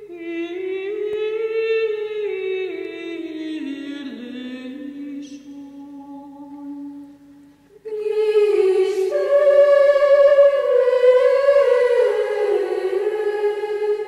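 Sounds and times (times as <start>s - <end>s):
chant-like humming vocal: 7.8s - 14.0s.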